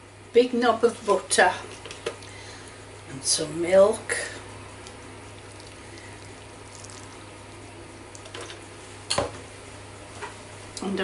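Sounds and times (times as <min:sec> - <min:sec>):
milk pouring: 0:04.8 - 0:07.4.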